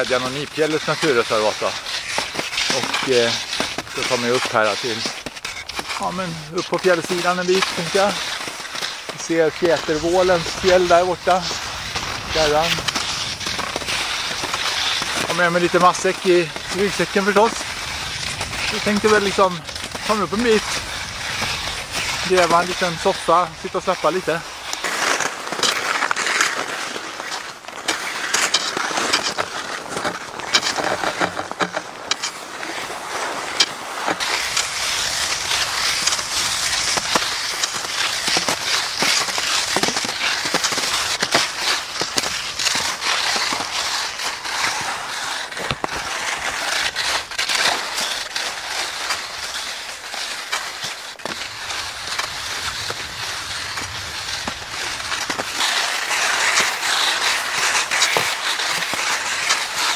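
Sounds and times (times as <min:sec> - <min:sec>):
skis scraping over crusty snow: 0:00.0 - 0:59.9.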